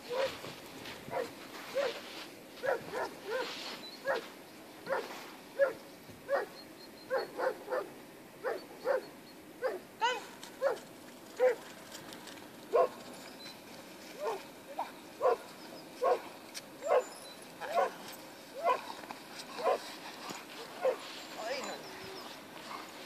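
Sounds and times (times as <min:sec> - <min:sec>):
dog yipping and whining: 0:16.8 - 0:17.9.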